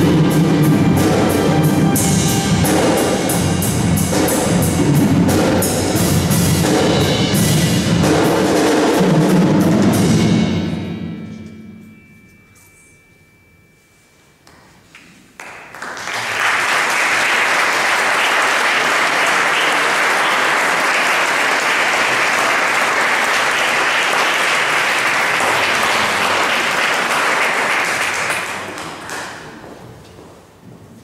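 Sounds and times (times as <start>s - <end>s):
audience applauding: 15.4s - 29.8s.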